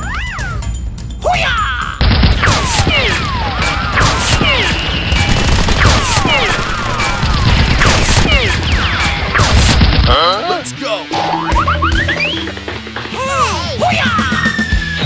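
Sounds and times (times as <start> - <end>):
background music: 0.0 - 15.0
rapid gunfire: 2.0 - 10.4
whistling glides: 4.6 - 5.3, 11.9 - 12.6.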